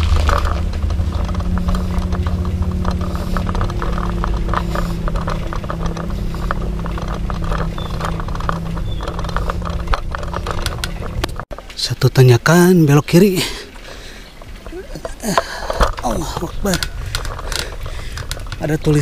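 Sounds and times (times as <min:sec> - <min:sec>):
steady low hum: 0:00.0 - 0:11.5
bicycle rattling over rough road: 0:00.0 - 0:19.0.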